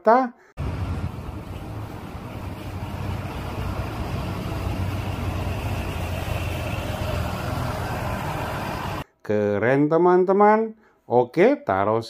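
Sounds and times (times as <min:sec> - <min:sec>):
bus diesel engine: 0:00.6 - 0:09.0
road noise: 0:00.6 - 0:09.0.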